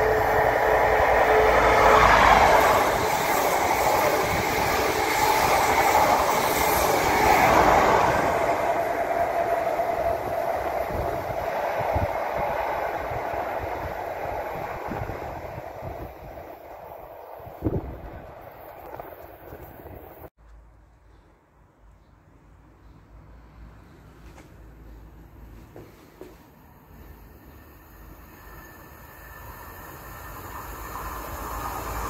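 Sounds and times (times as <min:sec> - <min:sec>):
train horn: 0:00.0 - 0:03.1
train rumble and wheel clatter: 0:00.0 - 0:20.3, 0:23.7 - 0:32.0.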